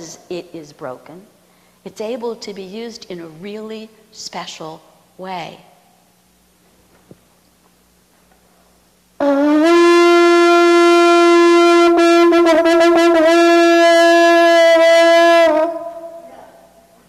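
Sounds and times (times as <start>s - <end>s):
conch shell trumpet note: 9.2s - 16.8s.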